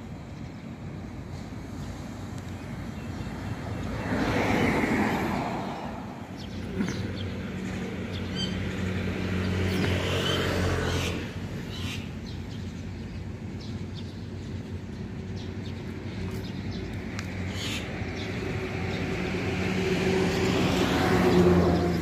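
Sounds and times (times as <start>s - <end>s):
low engine hum: 0.0s - 22.0s
birds chirping and whistling: 8.1s - 8.7s, 9.6s - 14.3s, 16.4s - 18.5s.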